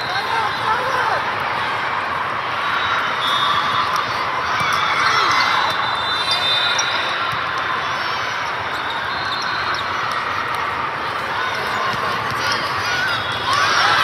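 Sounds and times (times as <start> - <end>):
crowd hubbub: 0.0 - 14.0
volleyball ball contacts: 3.0 - 14.0
shoes squeaking on court: 8.3 - 10.6.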